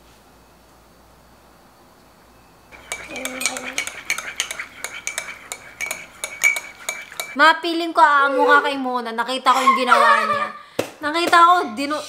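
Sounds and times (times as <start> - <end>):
mug ringing: 2.7 - 7.4
spoon clinking in a mug: 2.7 - 7.4.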